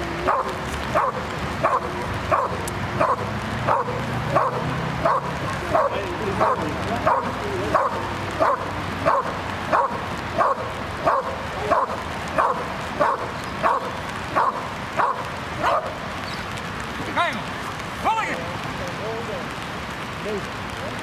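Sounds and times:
dog barking: 0.2 - 16.0.

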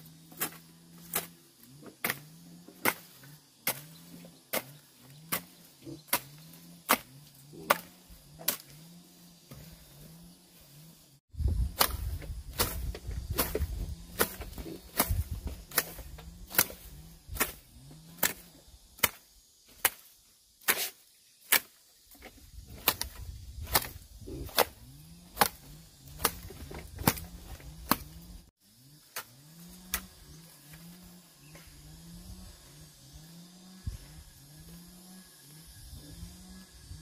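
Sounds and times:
hand tool chopping strikes: 0.3 - 8.8, 11.6 - 21.8, 22.7 - 28.4.

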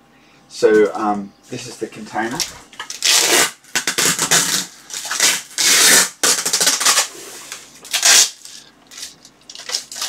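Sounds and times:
plastic wrapping crinkling: 2.3 - 10.0.

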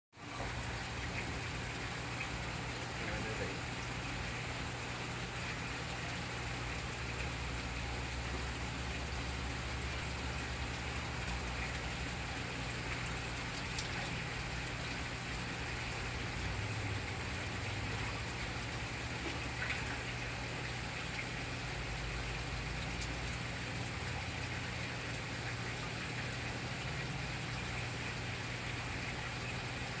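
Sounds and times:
low pump hum: 0.2 - 30.0
water trickling and splashing: 0.2 - 30.0.

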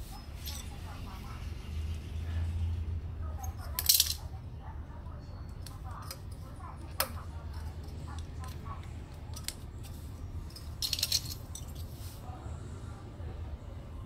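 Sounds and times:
metallic rattle: 10.4 - 12.0.

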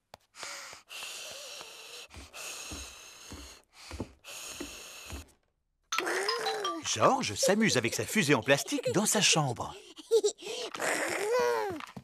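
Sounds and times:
footsteps on stairs: 0.2 - 5.4.

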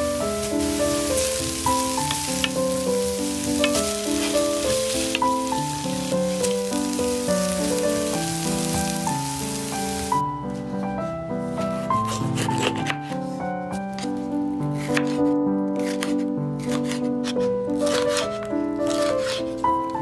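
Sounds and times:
food sizzling in hot oil: 0.0 - 10.2
background music: 0.0 - 20.0.

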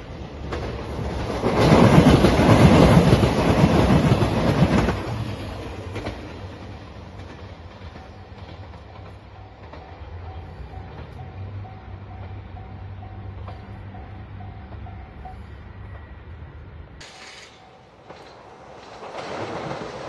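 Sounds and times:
diesel train passing: 0.0 - 20.0.

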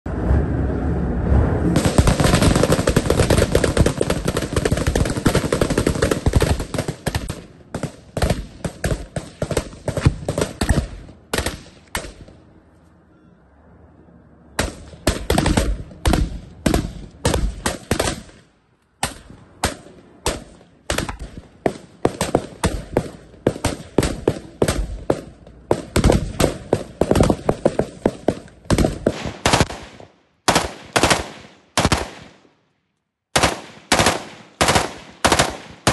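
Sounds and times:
assault rifles firing: 1.8 - 12.4, 14.6 - 32.4, 33.3 - 35.9.

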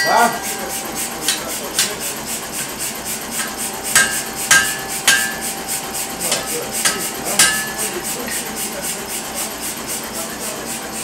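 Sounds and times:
hammer striking metal on anvil: 0.0 - 2.1, 3.3 - 5.7, 6.3 - 8.5.

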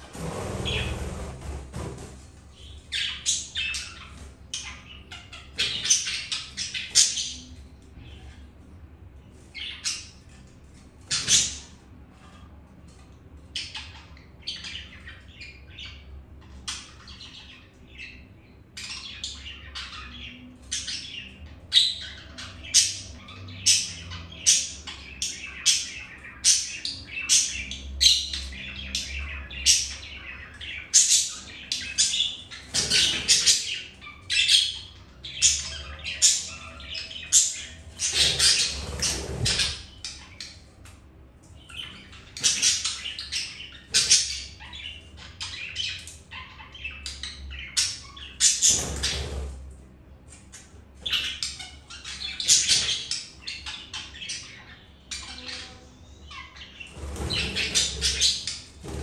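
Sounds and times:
wings fluttering: 0.0 - 2.4, 56.9 - 59.0
budgerigars chirping and squawking: 0.1 - 8.4, 9.3 - 12.4, 13.4 - 40.7, 41.6 - 59.0.

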